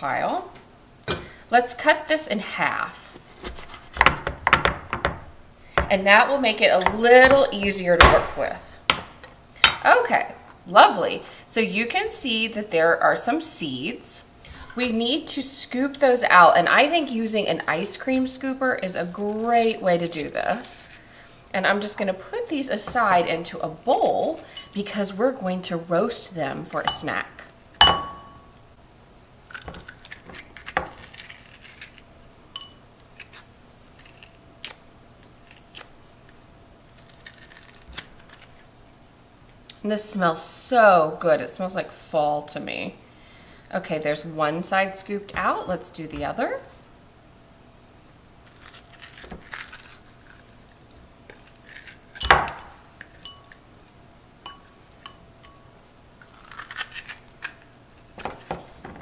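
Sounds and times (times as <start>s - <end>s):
scoop clinking on glass bowl: 27.8s - 28.4s.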